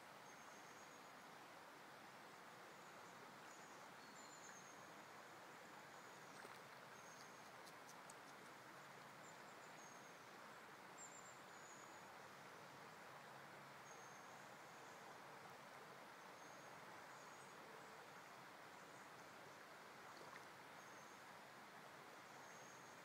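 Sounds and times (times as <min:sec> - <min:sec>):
shallow river over stones: 0:00.0 - 0:23.0
faint clicks: 0:06.3 - 0:09.1.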